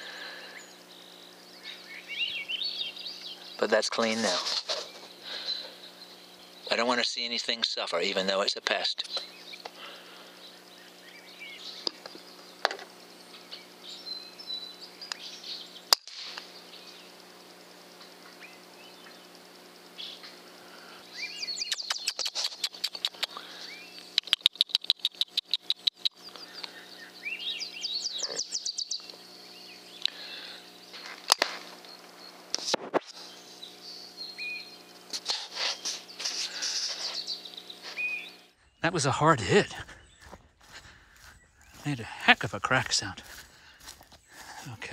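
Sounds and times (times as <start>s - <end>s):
songbirds chirping: 0.0s - 44.9s
air rifle shot: 16.0s - 16.5s.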